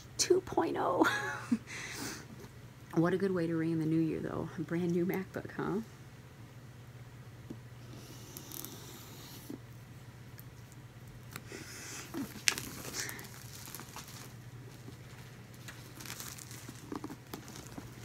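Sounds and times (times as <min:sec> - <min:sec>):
plastic film crinkling: 0:12.1 - 0:18.0.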